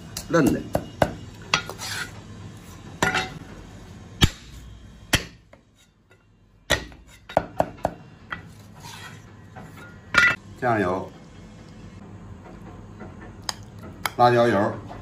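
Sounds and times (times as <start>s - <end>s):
soft scrape on chopping board: 8.5s - 9.3s.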